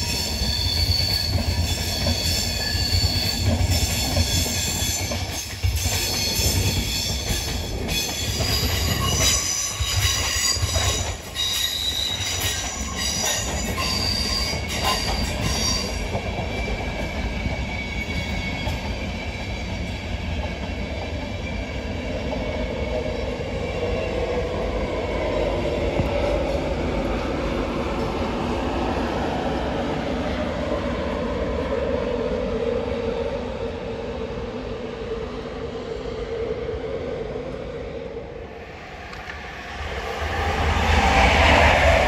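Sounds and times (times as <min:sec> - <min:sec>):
train wheels squealing: 0:00.0 - 0:24.4
train running on rails: 0:00.0 - 0:42.0.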